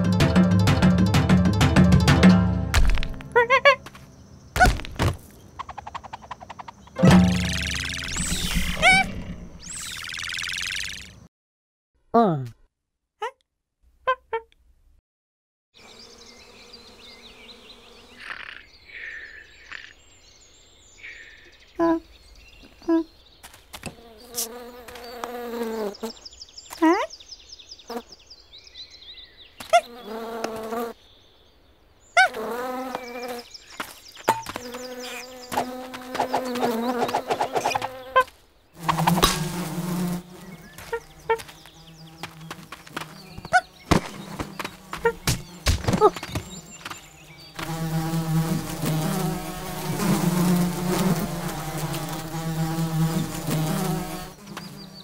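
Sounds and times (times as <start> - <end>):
cartoon monkey wailing cries: 3.3 - 3.8
cartoon bee buzzing: 7.0 - 11.2, 23.8 - 26.2, 29.6 - 31.0, 32.2 - 55.0.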